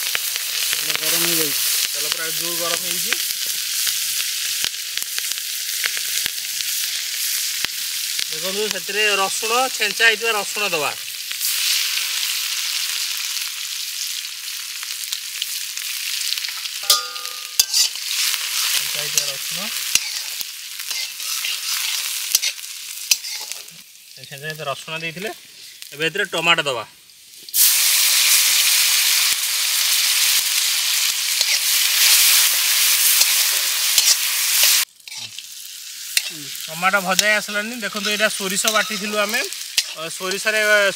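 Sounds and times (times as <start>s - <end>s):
hot oil sizzling in a pan: 0.0s - 40.9s
metallic clink: 16.8s - 17.9s.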